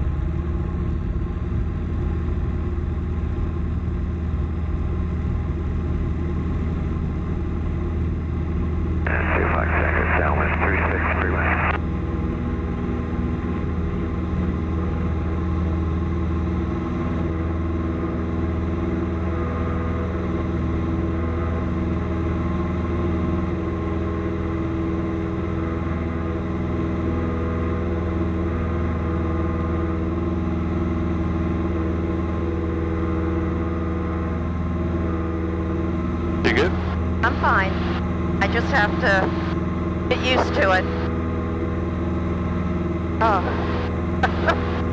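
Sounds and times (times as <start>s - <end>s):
propeller airplane engine running: 0.0s - 44.9s.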